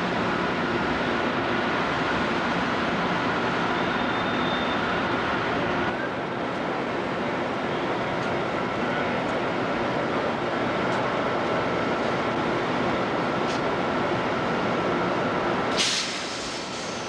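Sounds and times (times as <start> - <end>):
machinery hum and hiss: 0.0 - 17.0.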